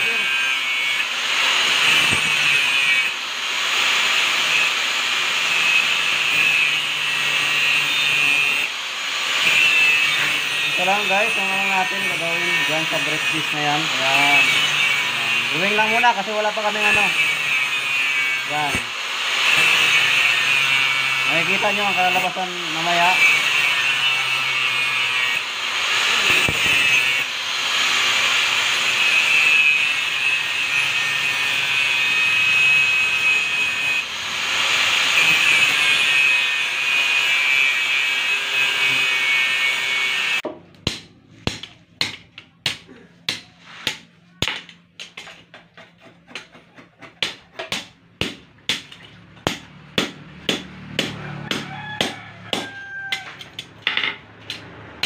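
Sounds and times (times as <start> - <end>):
angle grinder cutting steel: 0.0 - 40.5, 47.2 - 55.0
hammer forging steel on anvil: 1.8 - 2.9, 26.2 - 27.2, 40.4 - 54.7.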